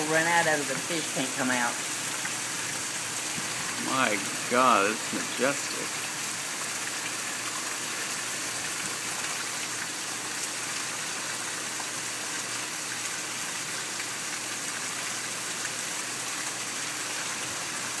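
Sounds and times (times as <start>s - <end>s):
hard rain pouring: 0.0s - 18.0s.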